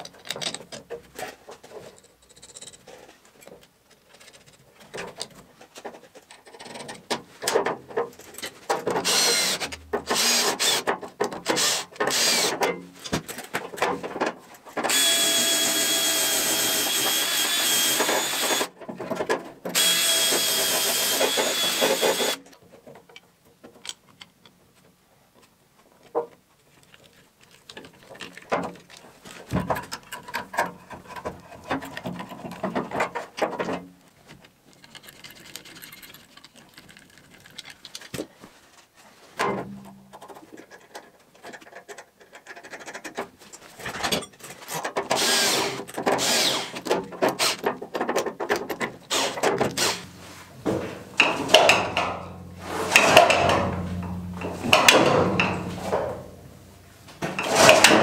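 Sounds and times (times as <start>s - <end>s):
hands handling bolts and tools: 0.0s - 10.2s
cordless drill running: 9.0s - 10.8s, 11.6s - 12.5s, 14.9s - 18.7s, 19.8s - 22.4s, 45.2s - 46.7s.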